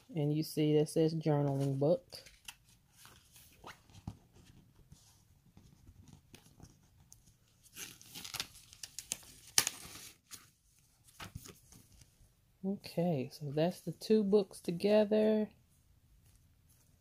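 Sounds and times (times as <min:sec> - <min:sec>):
paper rustling: 0:01.4 - 0:12.2.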